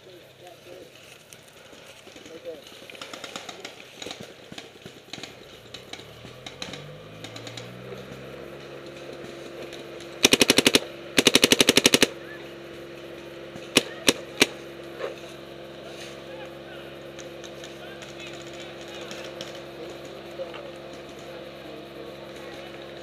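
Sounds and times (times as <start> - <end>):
paintball marker shots: 10.2 - 12.1, 13.7 - 14.6.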